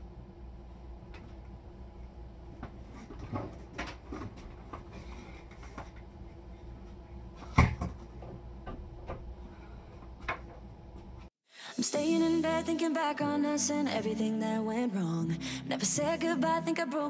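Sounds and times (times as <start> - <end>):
low room hum: 0.0 - 11.3.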